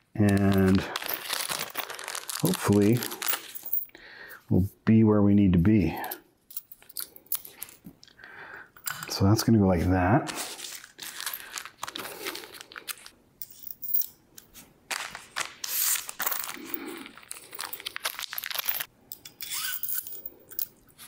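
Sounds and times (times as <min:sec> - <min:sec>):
plastic bags crinkling: 0:00.1 - 0:03.8, 0:10.4 - 0:13.1, 0:14.9 - 0:18.9.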